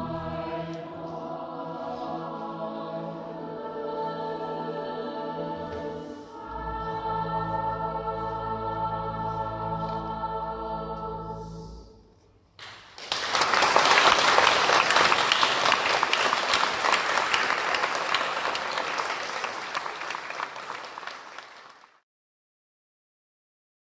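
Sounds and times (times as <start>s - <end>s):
choir and organ chord: 0.0s - 12.1s
audience applause: 12.6s - 22.0s.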